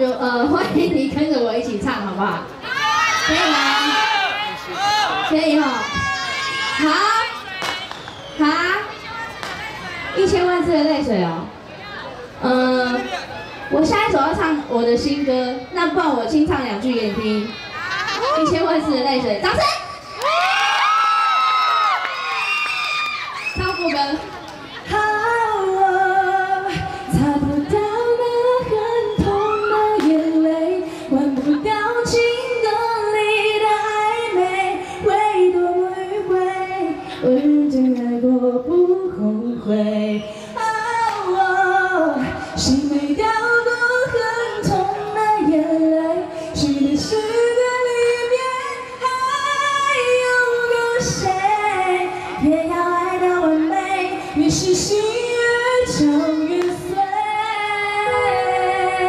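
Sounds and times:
woman singing a cappella: 24.9s - 59.0s.

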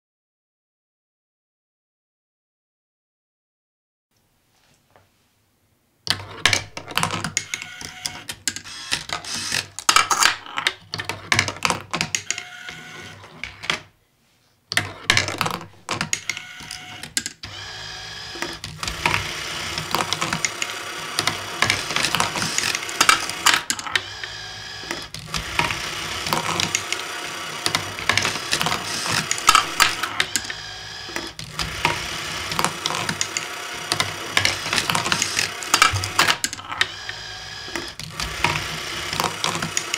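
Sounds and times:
motor whine: 16.2s - 39.9s.

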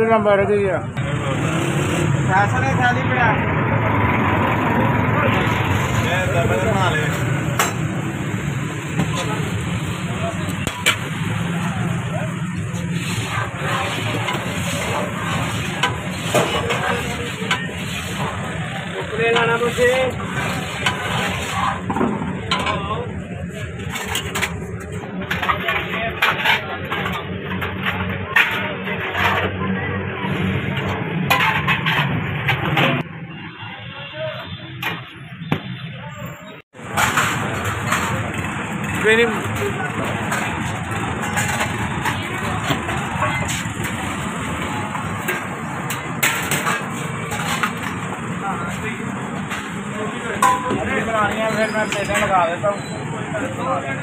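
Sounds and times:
busy street stall noise: 0.0s - 54.0s
metal rod stirring thick food: 10.6s - 22.4s
steel ladle clinking plates: 12.8s - 23.1s, 30.6s - 32.9s, 36.8s - 53.0s.

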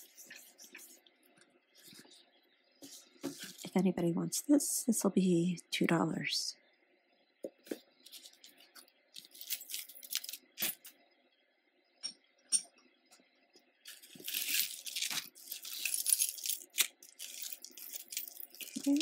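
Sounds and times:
metal chains clinking: 9.2s - 10.9s, 14.0s - 19.0s.

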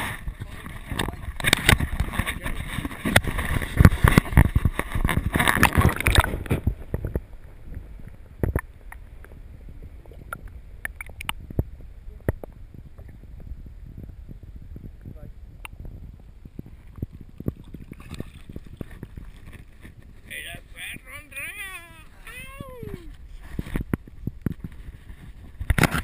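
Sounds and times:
water splashing: 0.0s - 11.6s, 16.6s - 20.4s
muffled underwater clicks and knocks: 0.0s - 13.5s, 14.7s - 20.3s, 23.1s - 26.0s
handling noise on camera housing: 0.6s - 7.2s.

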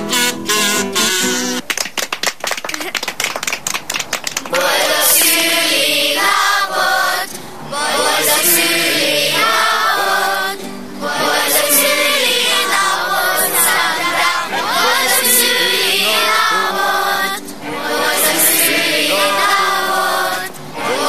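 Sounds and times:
children singing in chorus: 4.5s - 21.0s.

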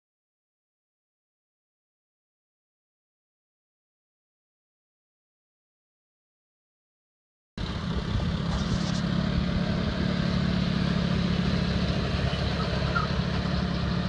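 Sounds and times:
tractor engine running: 7.6s - 14.0s.

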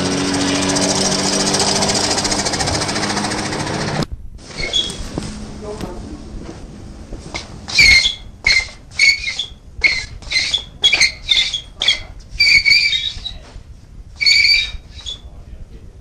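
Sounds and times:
high-pitched squeaks: 4.5s - 5.1s, 7.3s - 13.5s, 14.2s - 15.3s.

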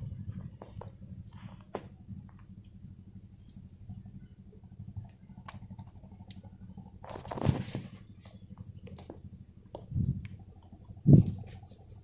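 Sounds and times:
low steady rumble: 0.0s - 12.0s
grass rustling: 7.0s - 9.2s.

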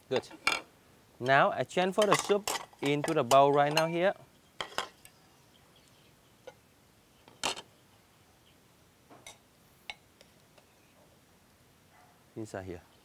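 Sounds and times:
metal ladle clinking on pottery: 2.0s - 4.0s.

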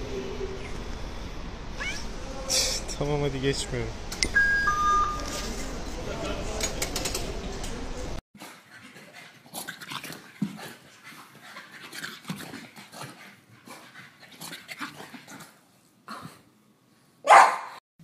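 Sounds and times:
loud background noise: 0.0s - 8.2s
dog panting: 8.4s - 15.6s.

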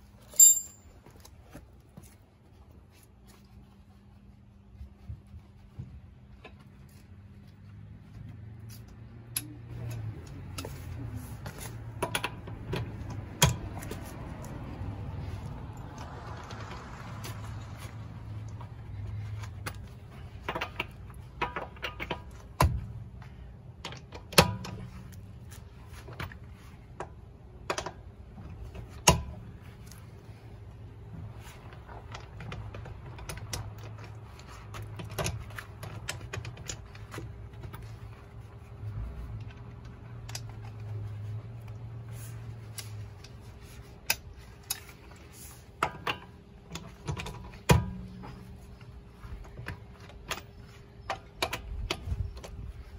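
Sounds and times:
ratchet wrench clicking: 0.3s - 0.8s
metal socket clinks: 0.3s - 1.0s.

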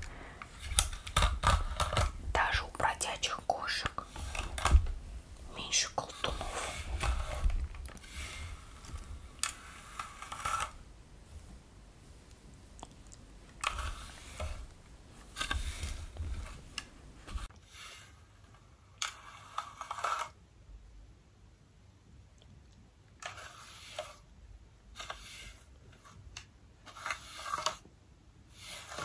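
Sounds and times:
fingers rustling through hair: 0.0s - 11.6s, 12.2s - 20.3s.

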